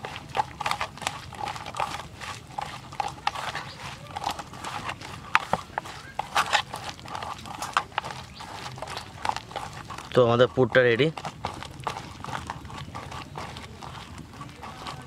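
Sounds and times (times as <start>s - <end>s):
wet squelching in steel bowl: 0.0s - 15.0s.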